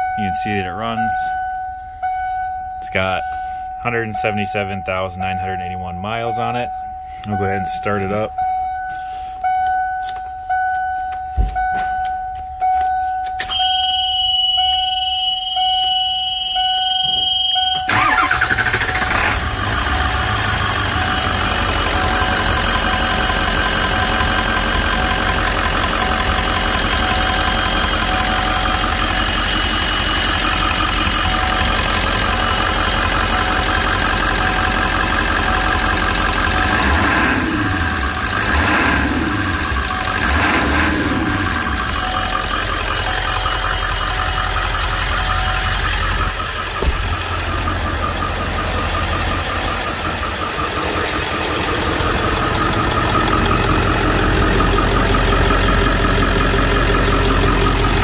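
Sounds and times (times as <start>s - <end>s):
vehicle warning chime dinging: 0.0s - 18.4s, 19.9s - 36.8s, 37.8s - 58.0s
steady high tone: 0.0s - 19.0s, 41.0s - 56.2s
diesel engine starting and idling: 12.7s - 58.0s.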